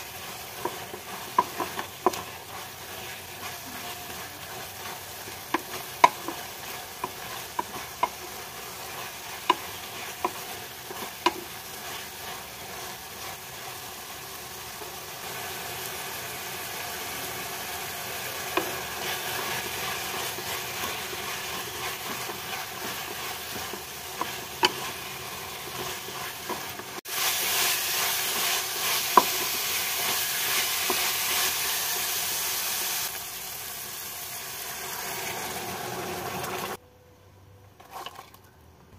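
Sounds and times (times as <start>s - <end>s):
greens sizzling in oil: 0.0s - 36.8s
spatula tapping against pan: 0.6s - 2.3s, 5.4s - 8.4s.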